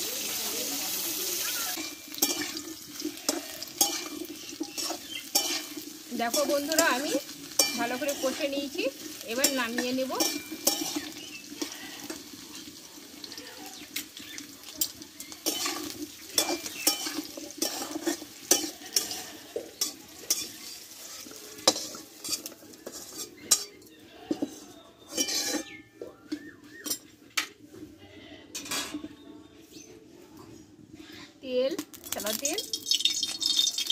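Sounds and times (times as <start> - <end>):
vegetables sizzling in oil: 0.0 - 27.2, 31.1 - 33.9
metal spatula scraping a steel pan: 1.7 - 12.8, 14.8 - 27.1.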